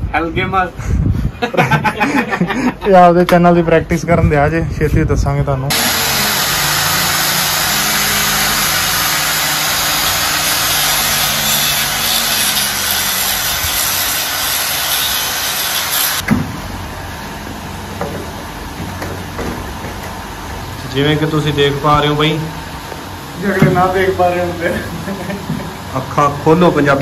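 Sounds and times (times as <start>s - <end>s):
angle grinder cutting wall: 5.7s - 16.3s.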